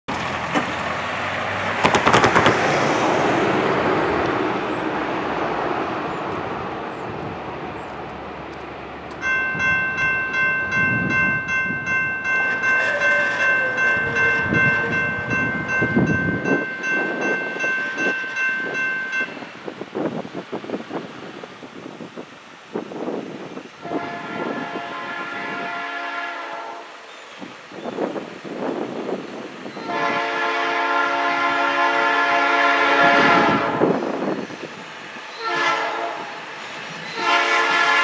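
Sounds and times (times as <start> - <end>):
truck clattering over crossing: 0.1 - 3.4
truck driving off: 0.1 - 9.2
railroad crossing bell ringing: 9.1 - 19.8.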